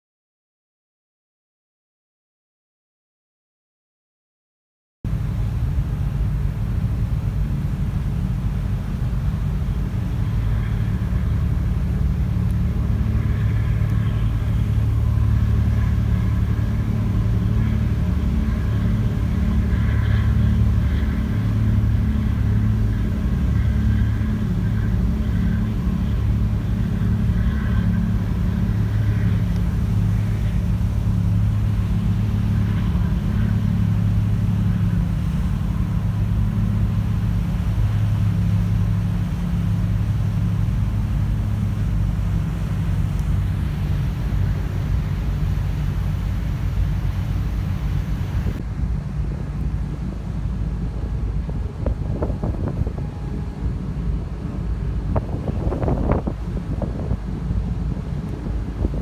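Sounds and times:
ferry engines droning: 5.1 - 59.0.

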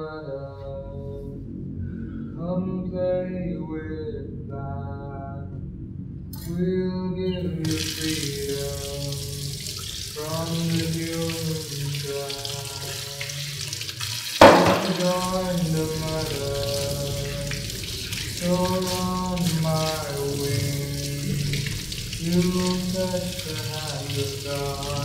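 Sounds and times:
running water hiss: 7.6 - 25.0
sharp hit: 14.4 - 15.4
low drone: 14.9 - 24.9
chanting in long held notes: 15.2 - 25.0.

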